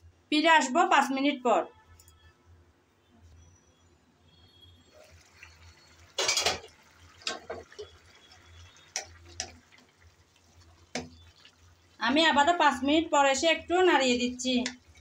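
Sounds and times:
curry simmering: 4.9 - 15.0
glass lid clattering: 6.2 - 6.7.

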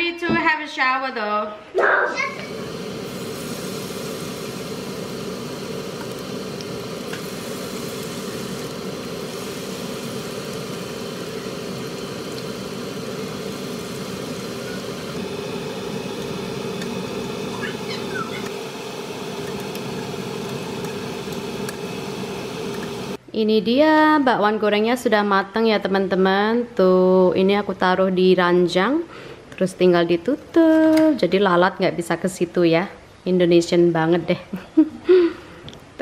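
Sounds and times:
steady hum: 2.3 - 23.2
batter frying in hot oil: 2.4 - 23.2.

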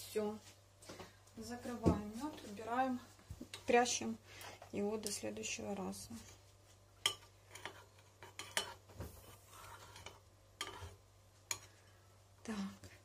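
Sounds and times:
metal spoon stirring in bowl: 7.0 - 12.0.

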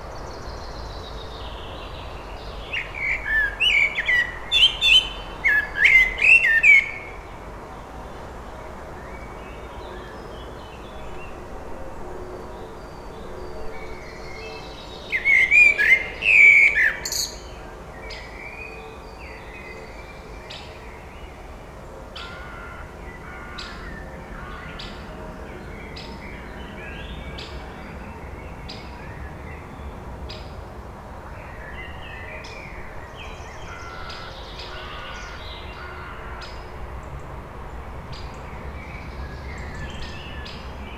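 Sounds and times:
blackbird singing: 2.6 - 7.1, 14.1 - 17.5.

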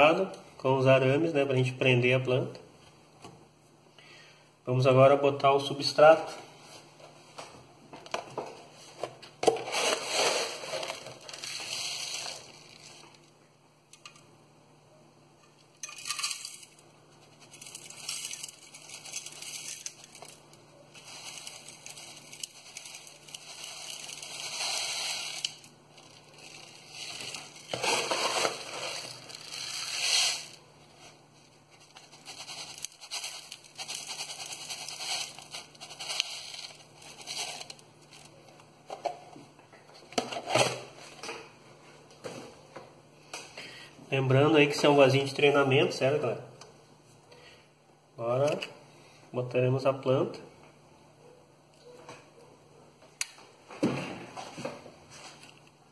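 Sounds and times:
gravel pouring into plastic pot: 9.7 - 13.2, 17.4 - 30.6, 31.8 - 38.3.

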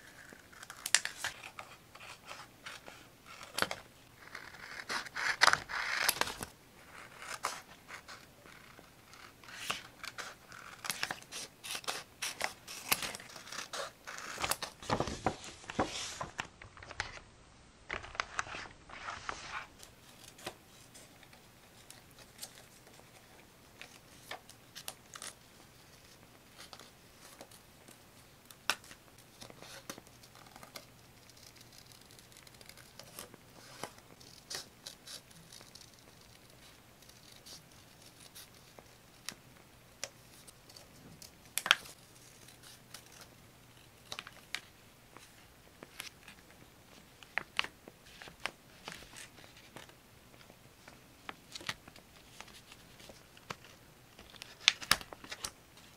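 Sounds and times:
paper scratching and rustling: 29.4 - 39.2.

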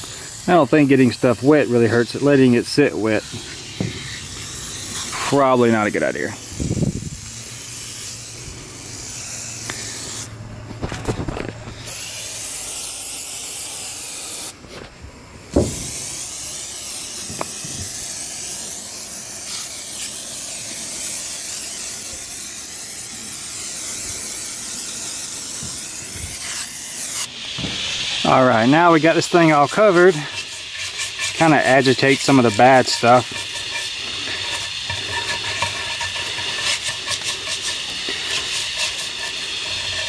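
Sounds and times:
aerosol can spraying: 0.0 - 10.3, 11.7 - 14.6, 15.4 - 40.0.

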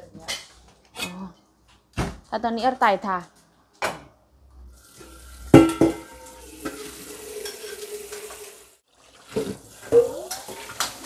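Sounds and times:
food sizzling in hot oil: 4.7 - 11.0.

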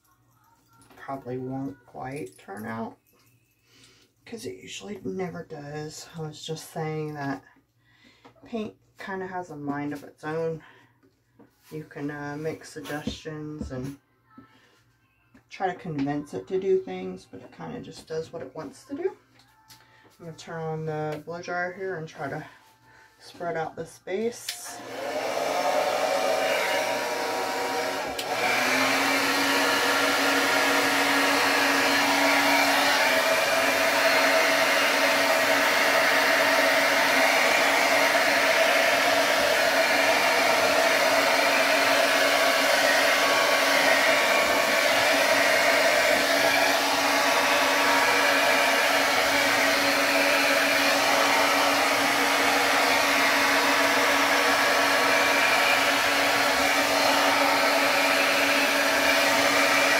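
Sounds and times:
hair dryer running: 23.3 - 59.9.

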